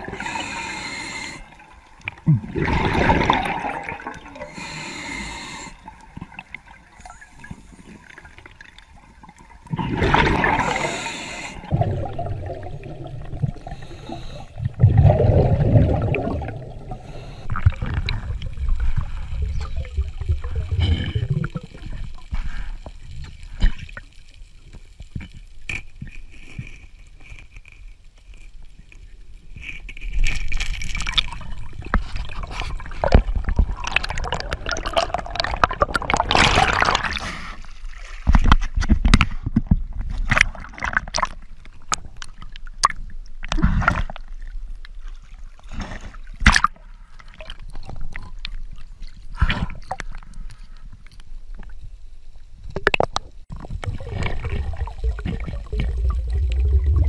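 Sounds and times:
water gurgling underwater: 2.0 - 4.5, 8.6 - 11.0, 11.6 - 13.9, 14.5 - 22.3, 30.9 - 37.2, 52.7 - 57.0
bubbling rush: 2.2 - 4.6, 9.6 - 22.1, 31.0 - 37.2, 53.5 - 57.0
underwater clicks and knocks: 38.2 - 43.0, 52.7 - 57.0.

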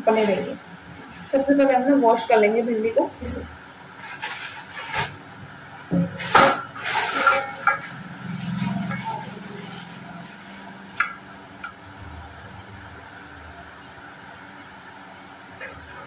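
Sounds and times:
plastic bag rustling: 0.0 - 1.6, 4.0 - 5.2, 6.1 - 11.3
steel colander clinking: 6.1 - 11.7.

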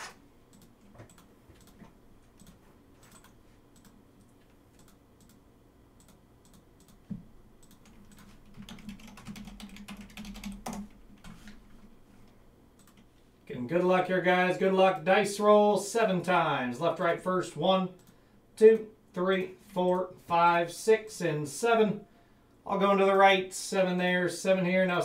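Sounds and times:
faint keyboard typing: 0.5 - 5.4, 6.0 - 11.7, 12.8 - 13.1.

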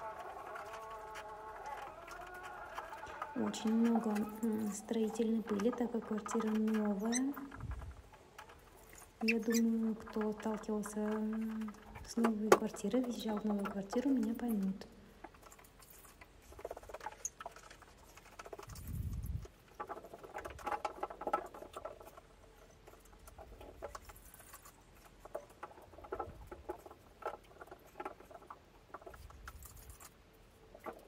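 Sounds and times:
wet cloth rustling and squeaking: 0.0 - 12.4.

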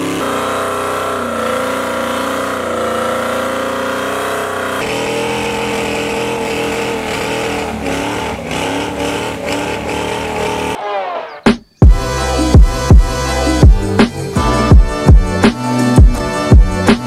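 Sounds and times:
engine revving at high revs: 0.0 - 10.8.

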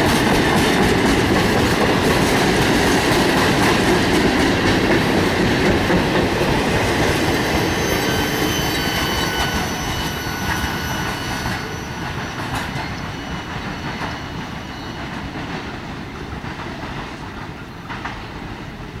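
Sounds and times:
freight wagons rolling on rails: 0.0 - 19.0
wheel squeal: 6.4 - 15.7.

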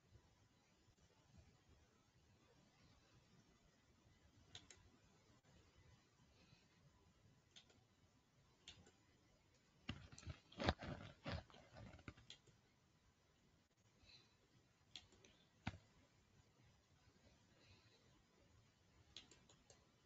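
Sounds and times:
computer mouse clicks: 4.4 - 4.9, 7.5 - 7.9, 8.6 - 12.6, 14.8 - 16.0, 19.1 - 19.9.

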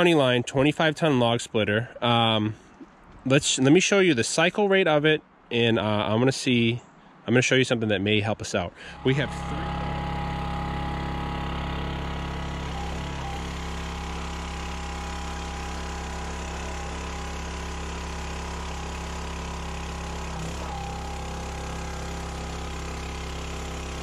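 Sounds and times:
log splitter engine and pump: 8.8 - 24.0.

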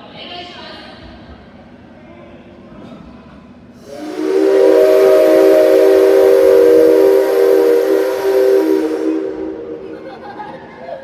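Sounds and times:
steam locomotive whistle: 3.8 - 10.0.

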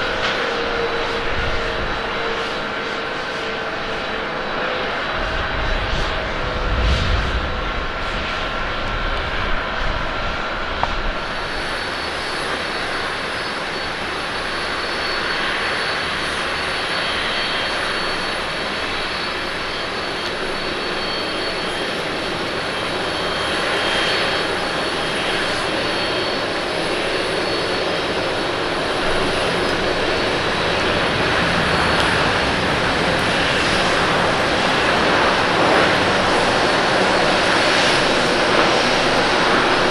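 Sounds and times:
jet engines roaring with whine: 0.0 - 39.9.

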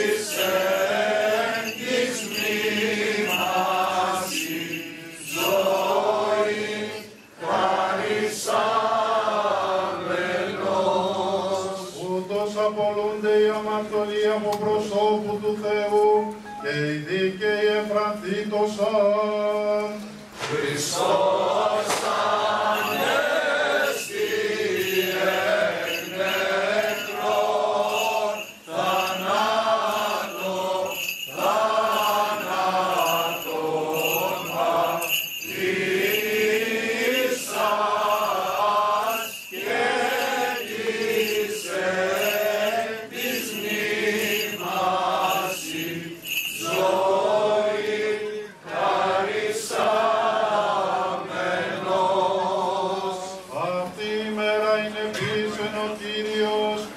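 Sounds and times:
voices singing a chant: 0.0 - 15.5, 16.8 - 56.9.

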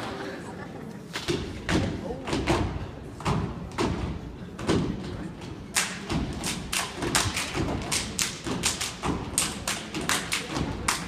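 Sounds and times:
sharp hand claps: 5.7 - 11.0.

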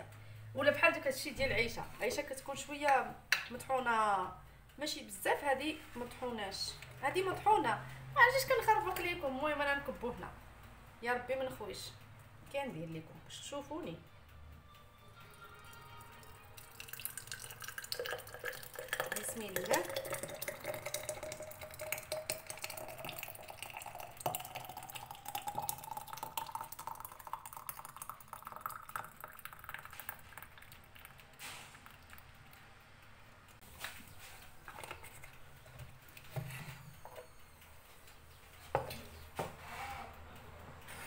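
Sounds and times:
thick jam pouring into glass jar: 16.2 - 32.3.

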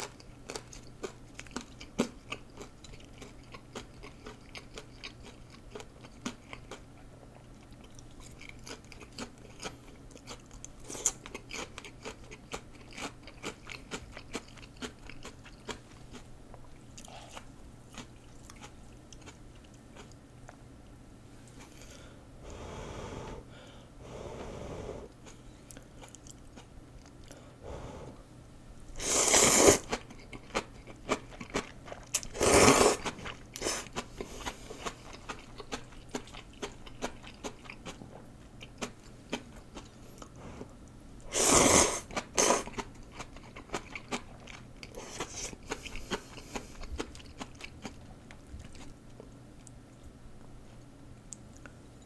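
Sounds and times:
wet chewing with mouth clicks: 0.0 - 20.6, 25.1 - 27.4, 29.7 - 41.0, 42.1 - 50.1
loud noodle slurps: 29.0 - 30.0, 32.3 - 33.8, 41.3 - 42.7.

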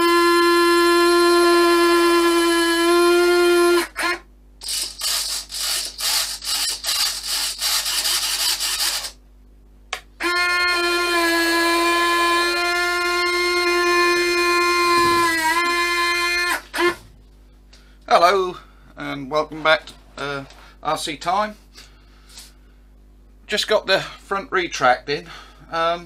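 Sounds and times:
stuttering buzzes: 0.0 - 9.2, 10.2 - 17.1
servo motors whining: 1.1 - 9.2, 11.8 - 17.1.

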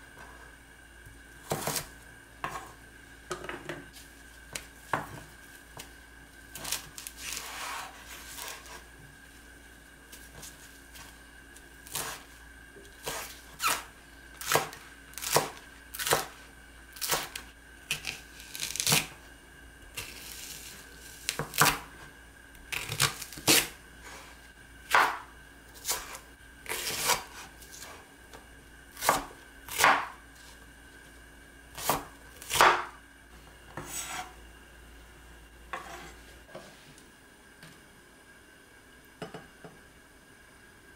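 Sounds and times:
knife slicing vegetables: 1.4 - 2.8, 6.5 - 8.9, 11.8 - 12.3, 13.0 - 19.2, 19.9 - 22.0, 22.7 - 24.3, 24.9 - 28.0, 28.9 - 30.5, 31.8 - 33.0, 33.7 - 34.4.

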